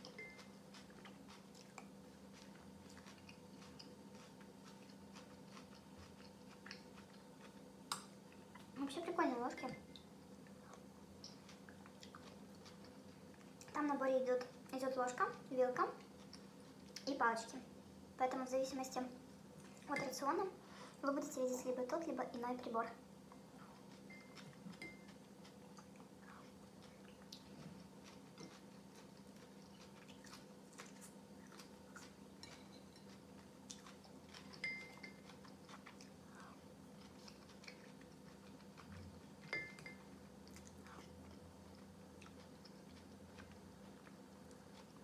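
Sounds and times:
person chewing: 0:00.0 - 0:08.8, 0:10.0 - 0:13.8, 0:16.0 - 0:17.1, 0:23.3 - 0:45.0.

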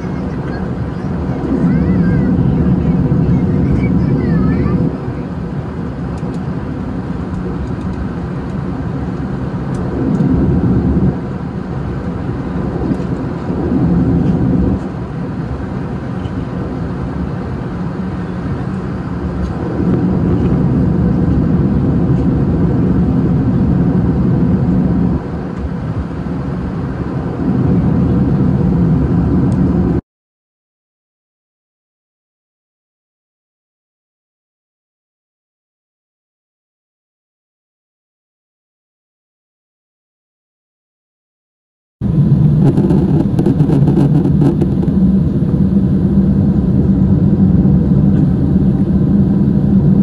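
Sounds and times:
aircraft cabin engine rumble: 0:00.0 - 0:30.0, 0:42.0 - 0:50.0.

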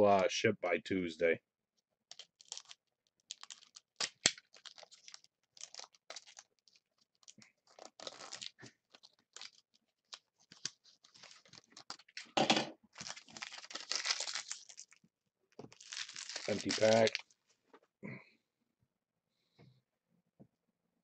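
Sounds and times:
foil wrapper crinkling: 0:02.1 - 0:17.4.

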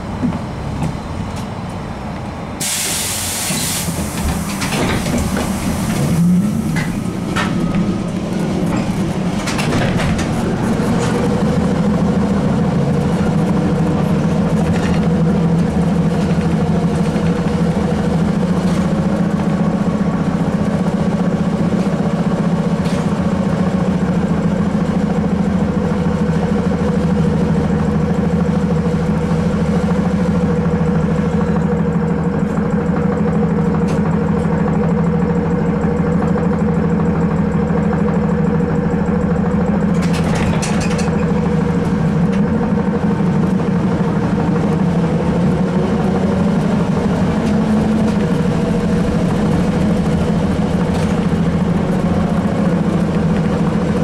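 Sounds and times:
trolleybus electric hum: 0:00.0 - 0:54.0
air hissing: 0:02.6 - 0:06.2.

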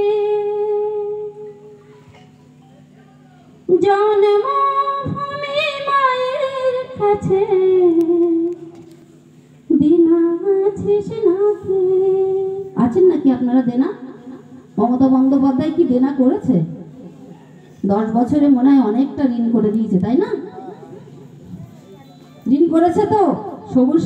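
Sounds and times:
woman singing through loudspeakers: 0:00.0 - 0:01.8, 0:03.7 - 0:08.7, 0:09.7 - 0:14.1.

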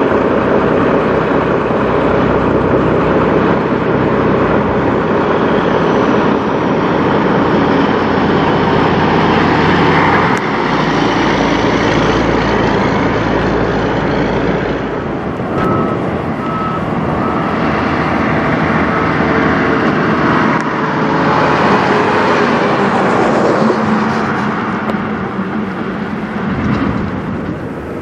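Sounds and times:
diesel trucks driving by: 0:00.0 - 0:28.0
tyre and road noise: 0:00.0 - 0:28.0.

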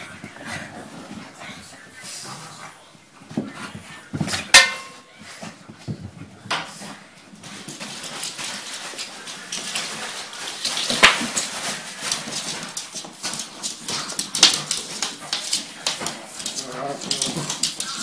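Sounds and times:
dog claws clicking on floor: 0:06.6 - 0:18.0.

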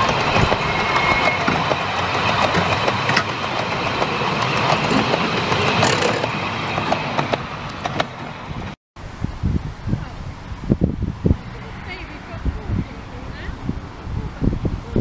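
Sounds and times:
train wheels rumbling on rails: 0:00.0 - 0:08.8.

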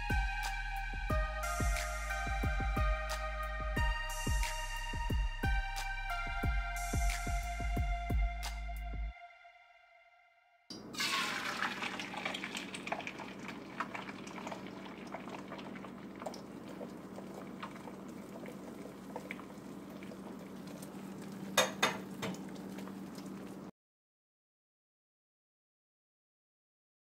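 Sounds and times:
eggs sizzling in frying pan: 0:11.0 - 0:23.7.

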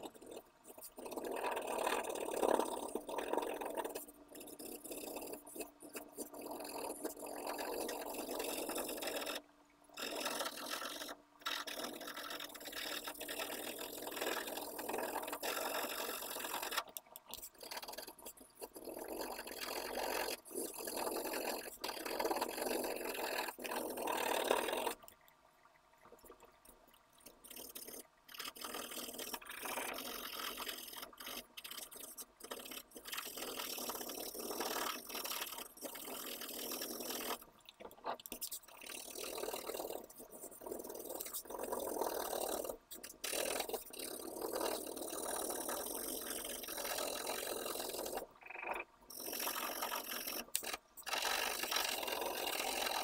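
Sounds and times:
pencil shading on paper: 0:10.0 - 0:16.8.

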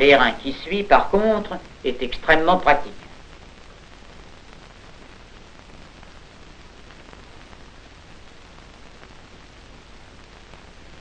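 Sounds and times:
faint scattered crackles: 0:00.0 - 0:11.0
film soundtrack hiss: 0:00.0 - 0:11.0.

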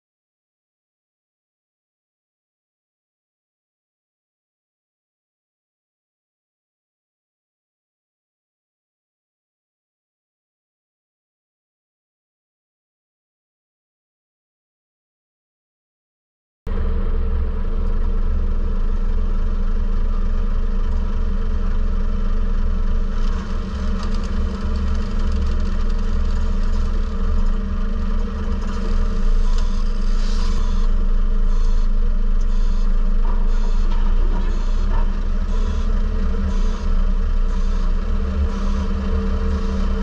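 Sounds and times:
diesel engine rumbling: 0:16.7 - 0:40.0.

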